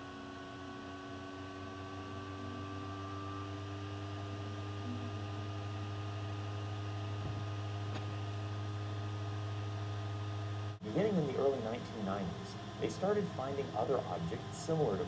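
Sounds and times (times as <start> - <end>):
low electrical hum: 0.0 - 15.0
faint higher tones: 4.8 - 5.3.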